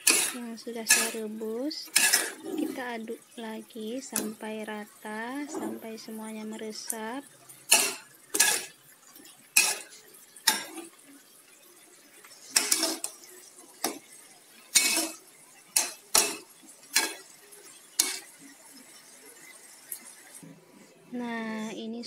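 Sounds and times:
spatula scraping a wok: 0.0s - 1.3s, 1.9s - 2.9s, 7.7s - 8.8s, 9.5s - 11.0s, 12.3s - 20.2s.

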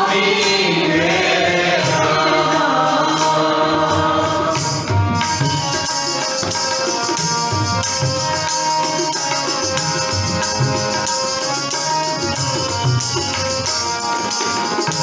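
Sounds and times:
harmonium: 0.0s - 15.0s
tabla strokes: 4.2s - 15.0s.

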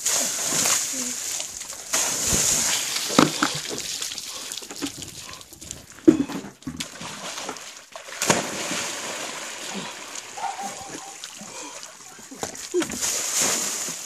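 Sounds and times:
water splashing on tarmac: 0.0s - 14.0s.

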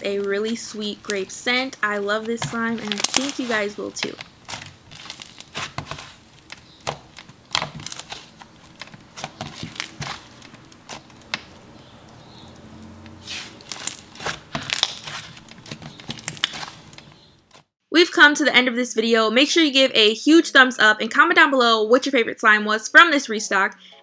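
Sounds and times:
hands squishing slime: 0.0s - 12.2s, 13.0s - 17.6s.

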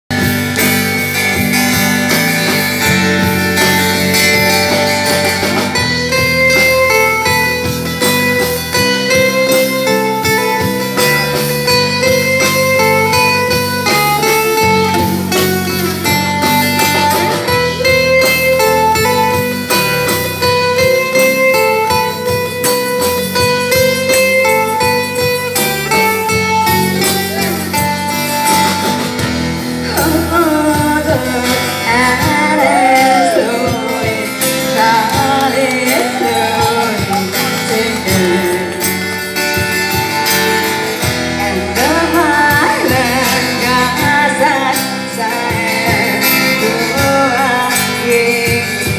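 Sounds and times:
acoustic guitar: 0.1s - 48.9s
woman singing: 29.9s - 39.0s, 41.3s - 48.9s.

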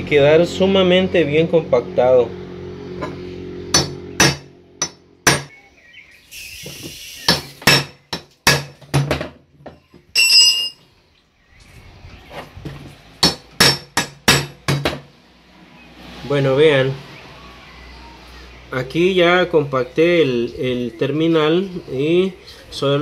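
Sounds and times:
hammer striking metal punch: 3.0s - 5.6s, 7.3s - 9.3s, 13.2s - 15.0s
ringing metal clang: 10.1s - 10.8s.

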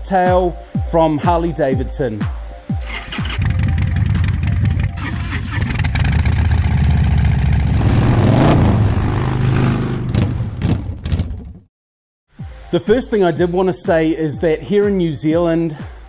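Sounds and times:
motorcycle engine starting and revving: 2.8s - 11.7s.

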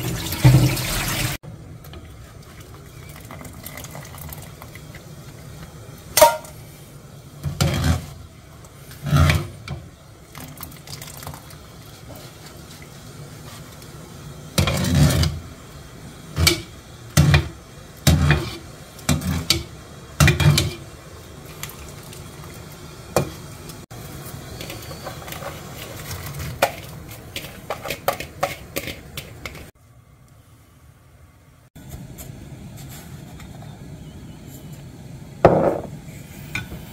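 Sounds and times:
metal strainer knocking on pots: 6.2s - 6.5s
vegetables clattering into pot: 6.2s - 6.6s.

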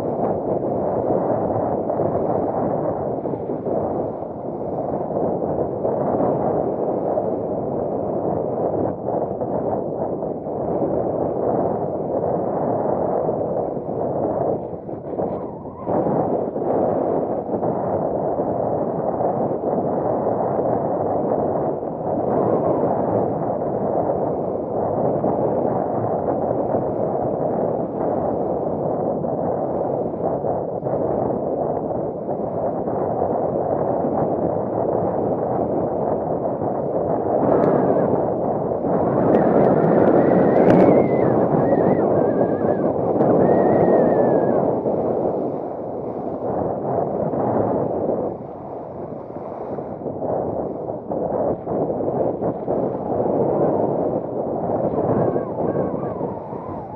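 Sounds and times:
water splashing along hull: 0.0s - 8.9s, 25.3s - 51.7s
wind noise: 0.0s - 56.9s
faint high wavering whistle: 55.1s - 56.9s.

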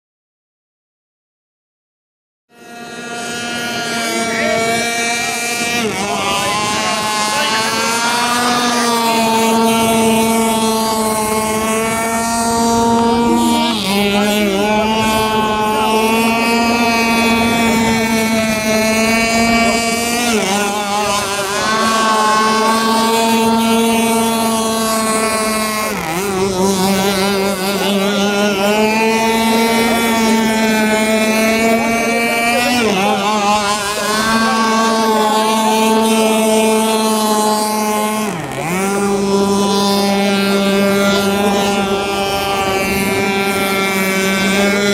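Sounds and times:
boat engine whining at high speed: 2.5s - 44.9s.

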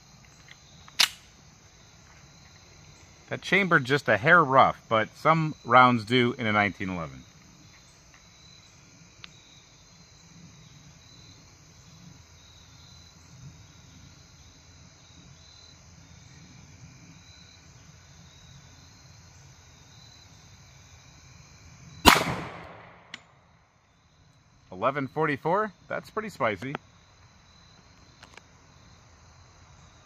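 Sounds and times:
loud pistol shot: 22.0s - 23.3s.

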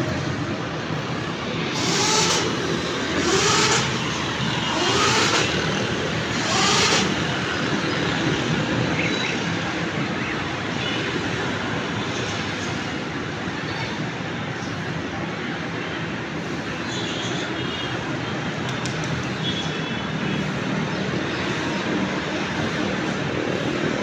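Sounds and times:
drilling rig engine running: 1.6s - 7.5s.

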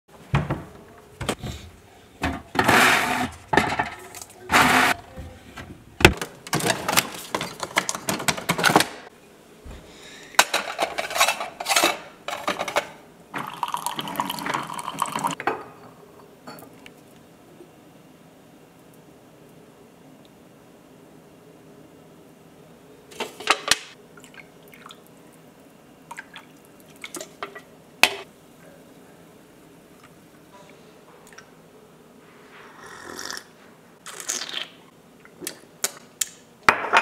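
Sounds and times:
cabinet door: 0.3s - 1.6s
coffee maker filling mug: 13.4s - 15.4s.

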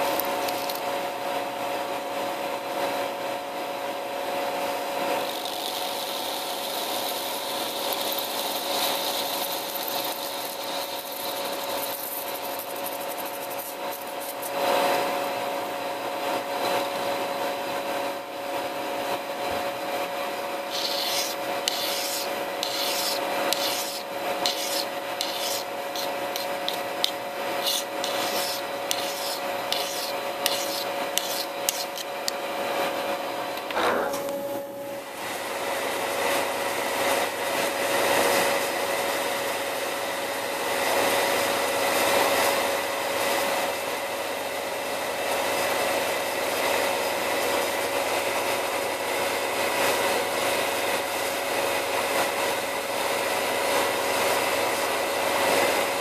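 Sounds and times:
cutting tool hissing on metal: 5.2s - 14.6s, 20.7s - 32.3s
hand file rasping on metal: 5.3s - 14.4s, 20.7s - 32.2s.

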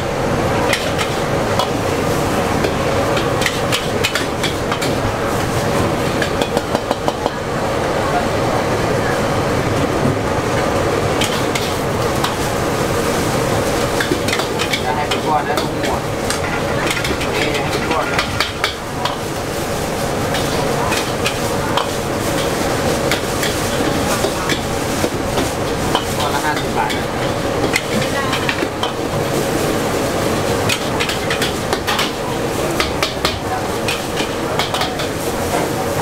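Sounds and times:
noodles sizzling in a wok: 0.0s - 9.5s, 10.4s - 36.0s.

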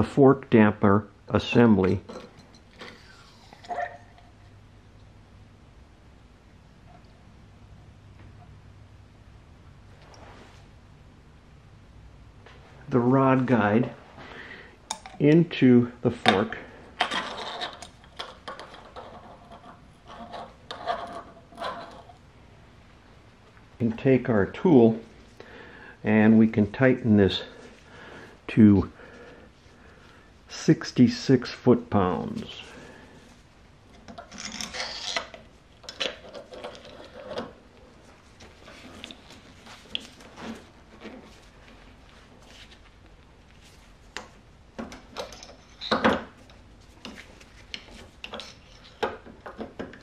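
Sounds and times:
metal parts scraping: 17.0s - 22.2s, 34.1s - 37.6s, 45.2s - 46.1s.

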